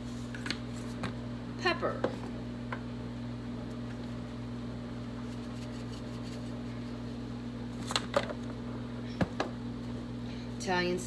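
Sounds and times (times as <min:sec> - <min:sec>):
low electrical hum with whir: 0:00.0 - 0:11.0.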